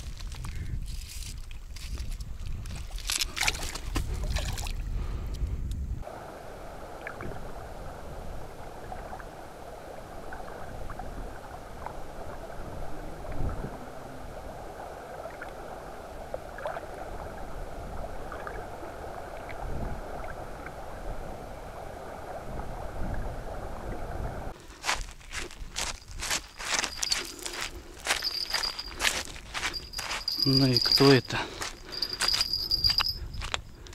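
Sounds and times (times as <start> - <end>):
muffled underwater river hiss: 6.0 - 24.6.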